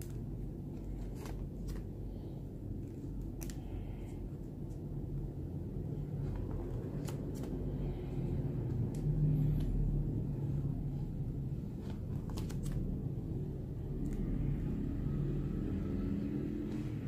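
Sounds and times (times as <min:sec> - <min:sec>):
plastic sleeve pages turning: 0:00.0 - 0:02.0, 0:06.2 - 0:07.8, 0:11.8 - 0:13.0
steady low rumble: 0:00.0 - 0:17.0.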